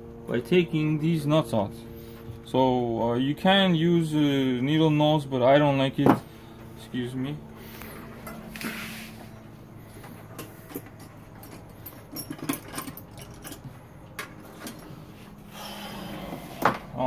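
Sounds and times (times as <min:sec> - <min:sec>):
steady low hum: 0:00.0 - 0:17.0
small metal clicks and clinks: 0:10.4 - 0:13.7.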